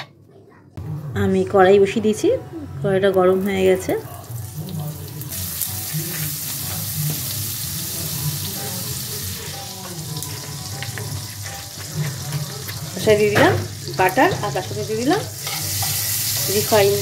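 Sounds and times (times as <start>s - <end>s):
butter sizzling in a pan: 4.0s - 17.0s.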